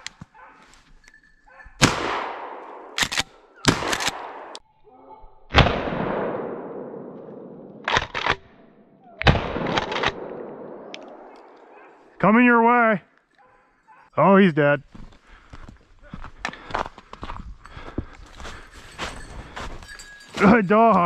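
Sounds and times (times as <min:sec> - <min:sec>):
shotgun shots echoing: 0:01.8 - 0:04.6, 0:05.5 - 0:08.6, 0:09.2 - 0:12.1.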